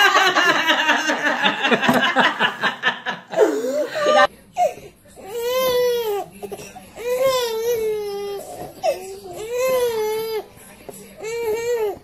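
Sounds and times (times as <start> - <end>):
people laughing: 0.0 - 4.3
voices: 0.0 - 12.0.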